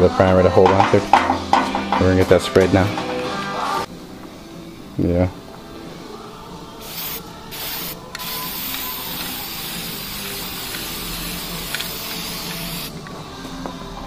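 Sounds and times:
aerosol spray can hissing: 0:06.8 - 0:13.0.

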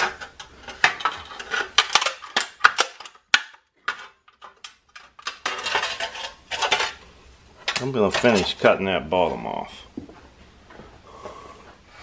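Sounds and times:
metallic clinks and crinkles: 0:00.0 - 0:07.0
sheet metal scraping and rattling: 0:03.9 - 0:07.0.

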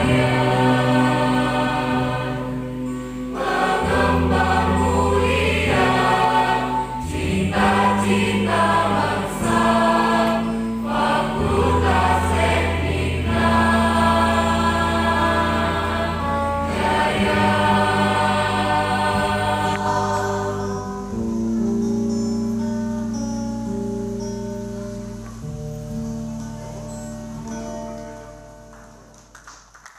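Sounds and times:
mixed choir singing in harmony: 0:00.0 - 0:21.4.

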